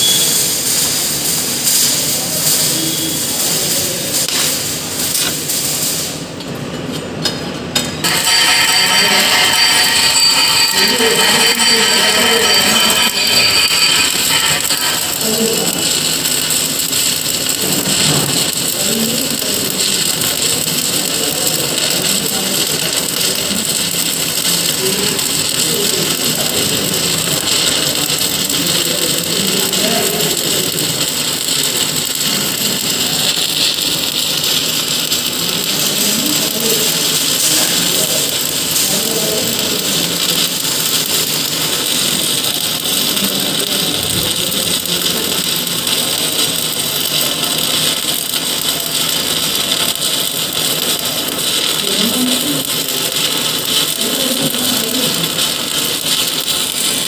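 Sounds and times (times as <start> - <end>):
arc welding hiss: 0.0 - 57.0.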